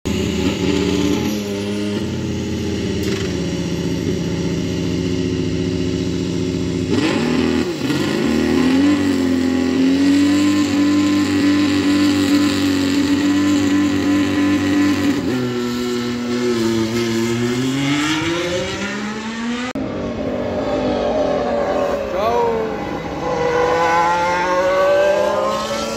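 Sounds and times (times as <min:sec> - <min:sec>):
racing car engine: 0:00.1 - 0:25.9.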